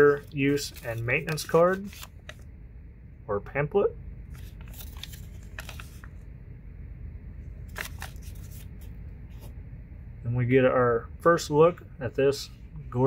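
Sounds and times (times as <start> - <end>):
paper rustling: 0.0 - 2.4, 4.3 - 6.2, 7.6 - 9.5.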